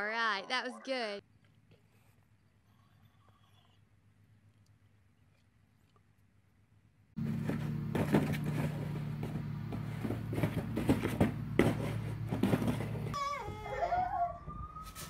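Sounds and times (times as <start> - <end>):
cardboard box knocks and scuffs: 7.2 - 13.1
steady low hum: 7.2 - 13.2.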